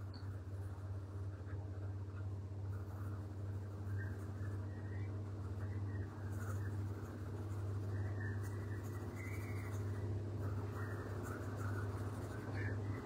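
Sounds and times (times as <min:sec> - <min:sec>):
coloured pencil shading on paper: 0:00.0 - 0:13.0
steady low hum: 0:00.0 - 0:13.0.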